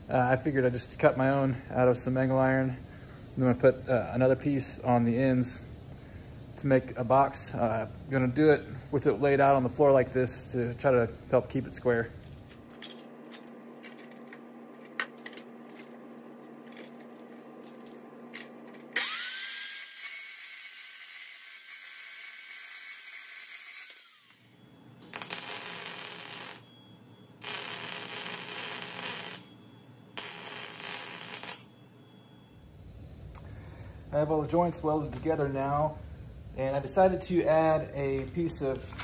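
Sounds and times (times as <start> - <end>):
welder crackling: 12.7 - 26.7, 27.3 - 29.5, 30.2 - 32.0
chop saw cutting metal: 19.0 - 24.4
low hum: 24.0 - 39.0.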